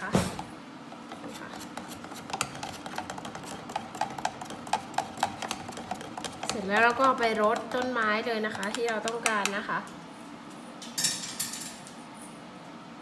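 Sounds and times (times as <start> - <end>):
stick stirring liquid: 0.9 - 9.7.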